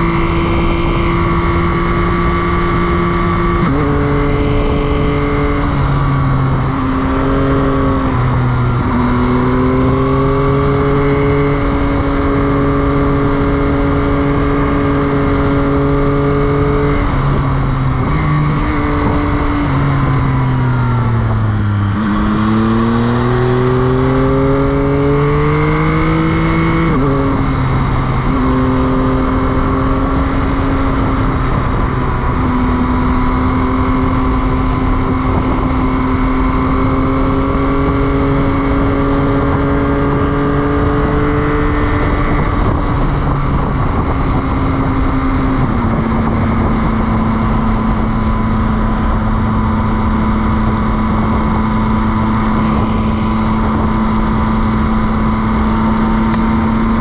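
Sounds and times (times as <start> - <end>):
motorcycle engine revving: 0.0 - 57.0
steady rush of noise: 39.4 - 57.0.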